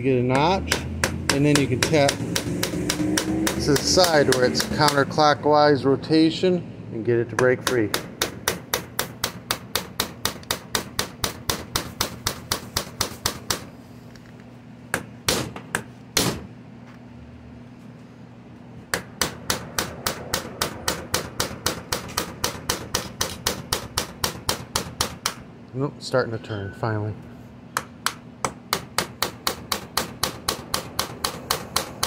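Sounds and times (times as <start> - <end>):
hammer tapping on screwdriver: 0.3 - 5.0.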